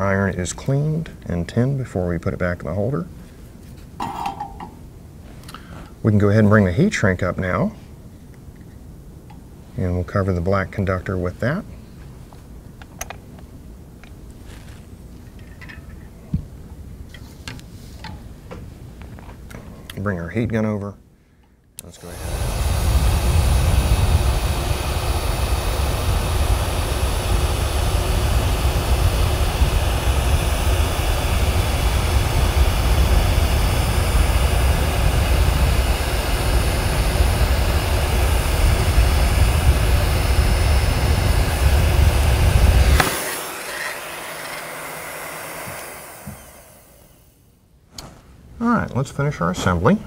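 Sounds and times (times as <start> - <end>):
heat gun blowing: 21.8 - 47.5.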